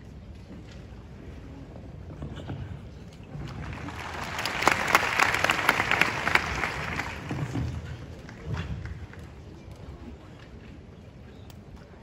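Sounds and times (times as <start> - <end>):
crowd applauding: 3.4 - 9.2.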